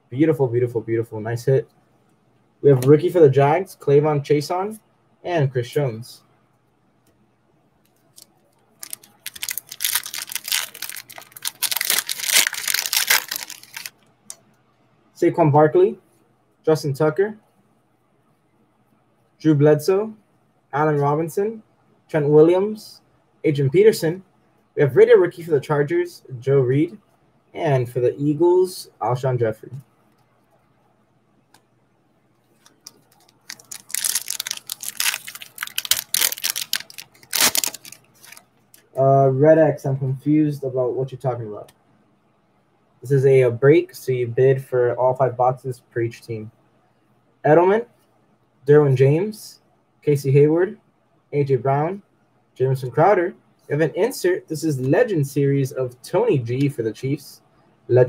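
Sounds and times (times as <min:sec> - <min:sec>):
foil pack crinkling and tearing: 0:08.8 - 0:13.9, 0:32.6 - 0:38.4.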